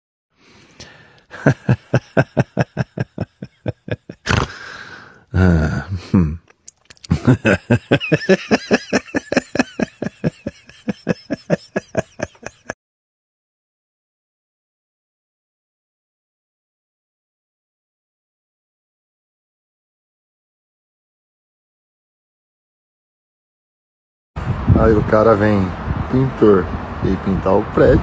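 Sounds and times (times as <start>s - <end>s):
person laughing hard: 0.8s - 6.4s, 7.1s - 12.8s.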